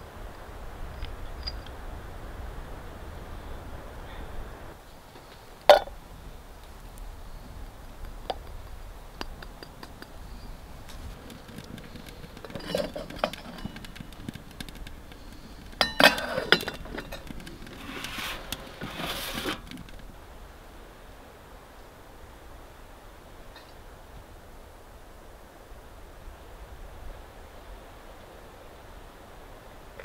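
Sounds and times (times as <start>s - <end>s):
metal cookware clinking: 15.8s - 19.2s.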